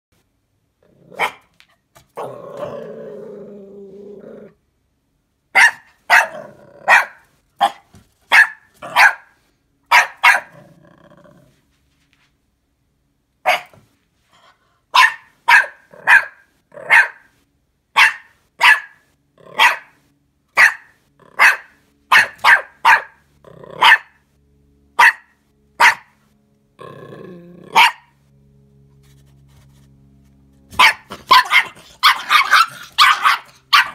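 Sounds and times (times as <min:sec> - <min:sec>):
puppy growling: 0:00.8 - 0:01.4, 0:02.0 - 0:04.6, 0:06.2 - 0:07.2, 0:10.4 - 0:11.6, 0:19.4 - 0:19.9, 0:21.2 - 0:21.7, 0:23.4 - 0:24.1, 0:26.8 - 0:28.0, 0:30.8 - 0:33.9
puppy yapping: 0:01.1 - 0:02.8, 0:05.6 - 0:09.3, 0:09.9 - 0:10.6, 0:13.5 - 0:13.8, 0:15.0 - 0:17.3, 0:18.0 - 0:19.0, 0:19.6 - 0:20.0, 0:20.6 - 0:23.2, 0:23.8 - 0:24.2, 0:25.0 - 0:26.1, 0:27.7 - 0:28.1, 0:30.7 - 0:33.9.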